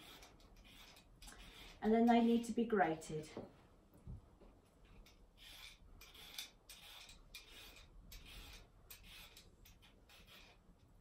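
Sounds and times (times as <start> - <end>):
peeler scraping carrot: 0.0 - 2.5, 5.0 - 11.0.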